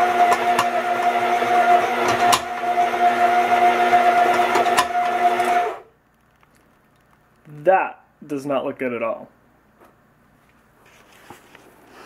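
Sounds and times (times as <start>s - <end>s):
stand mixer motor whine: 0.0s - 5.8s
mixer bowl knocking: 0.1s - 3.1s, 4.0s - 5.4s.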